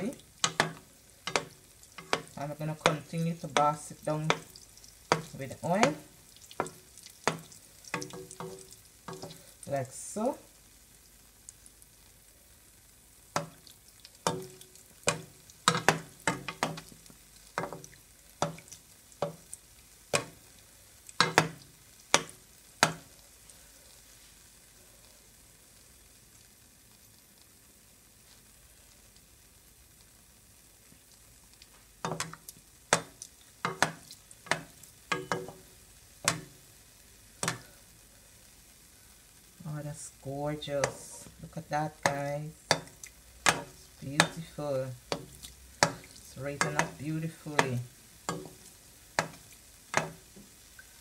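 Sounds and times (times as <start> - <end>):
dough sizzling in oil: 0.0 - 51.0
slotted spoon knocking on pan: 0.4 - 4.5, 5.1 - 6.0, 6.6 - 9.4, 14.2 - 16.9, 21.2 - 23.1, 32.0 - 36.6, 37.4 - 37.7, 42.0 - 44.4, 45.1 - 50.4.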